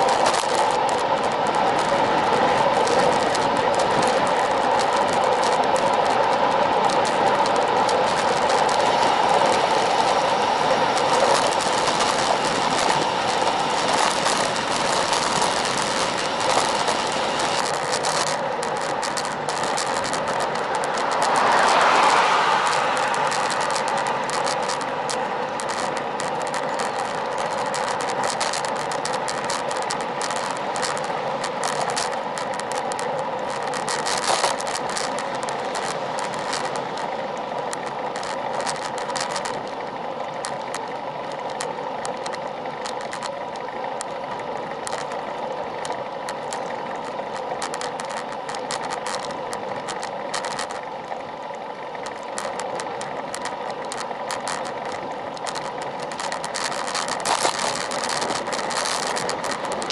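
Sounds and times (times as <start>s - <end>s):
bicycle tyre and wind noise: 0.0s - 59.9s
bike rattling clicks: 0.0s - 59.9s
car passing: 19.3s - 26.4s.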